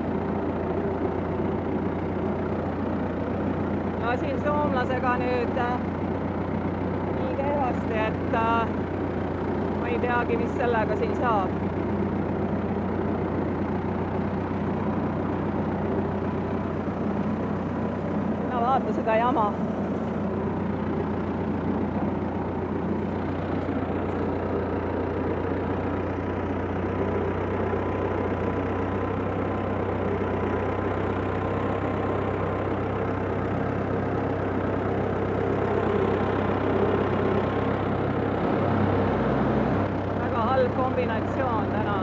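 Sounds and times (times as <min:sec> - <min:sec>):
tractor engine running: 0:00.0 - 0:42.0
thin steady whine: 0:15.8 - 0:32.8.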